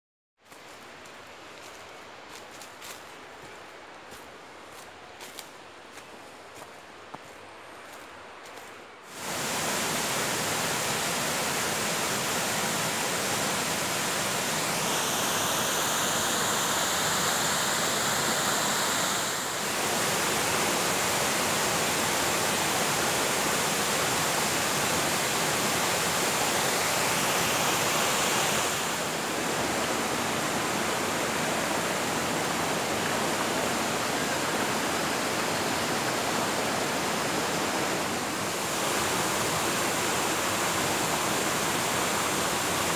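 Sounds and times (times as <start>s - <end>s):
stream rushing over stones: 9.1s - 42.9s.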